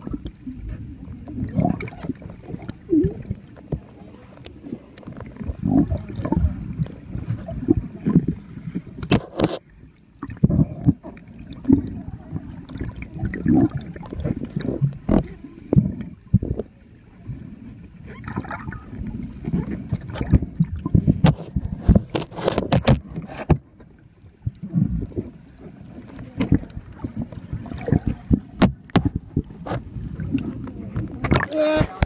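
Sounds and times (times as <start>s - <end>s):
underwater sloshing and bubbling: 0.0s - 32.0s
sharp clicks and knocks: 21.2s - 23.6s.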